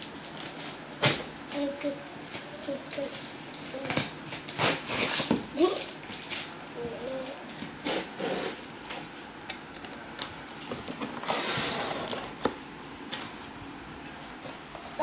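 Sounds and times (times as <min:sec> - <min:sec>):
cardboard rustling and scraping: 0:03.0 - 0:06.5, 0:07.1 - 0:09.1, 0:10.4 - 0:15.0.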